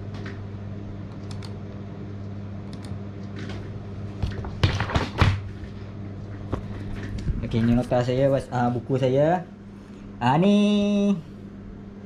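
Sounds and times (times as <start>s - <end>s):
steady low hum: 0.0s - 12.0s
computer keyboard clicking: 1.1s - 1.6s, 2.7s - 3.0s.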